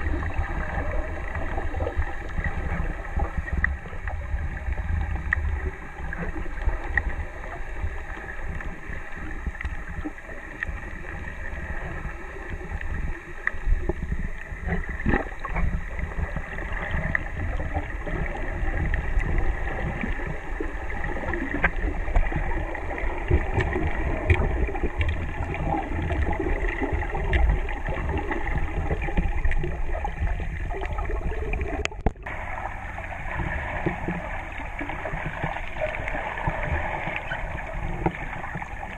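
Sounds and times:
muffled underwater rumble: 0.0 - 38.9
faint underwater clicks: 0.1 - 38.9.

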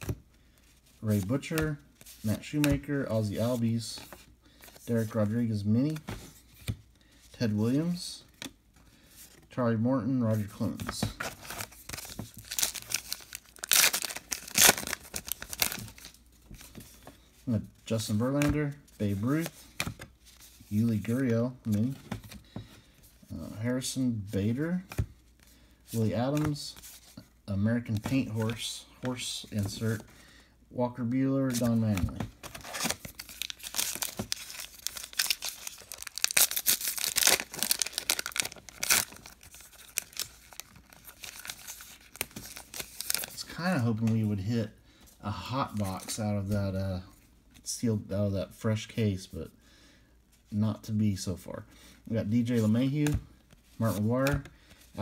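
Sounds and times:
card pack wrapper crinkling and tearing: 11.2 - 16.2, 31.5 - 43.5.

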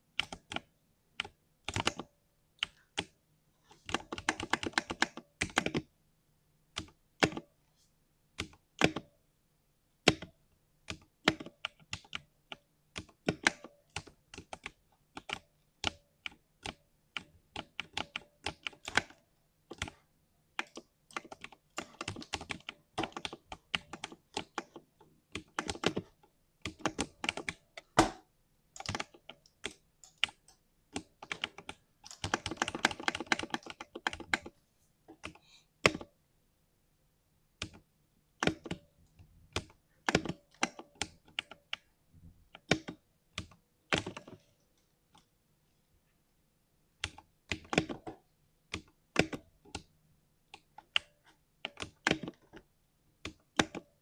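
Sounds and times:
mechanical keyboard typing: 0.2 - 3.2, 3.8 - 5.9, 6.8 - 7.5, 8.4 - 9.1, 10.0 - 10.3, 10.9 - 28.2, 28.8 - 34.5, 35.2 - 36.1, 37.6 - 37.8, 38.4 - 38.9, 39.5 - 41.9, 42.5 - 44.5, 47.0 - 49.9, 50.5 - 54.0.

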